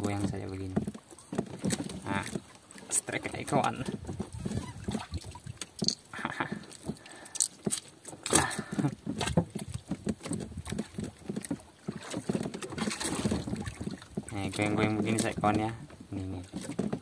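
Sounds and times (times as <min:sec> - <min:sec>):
knocks and taps in boat: 0:00.0 - 0:17.0
water splashes: 0:00.0 - 0:17.0.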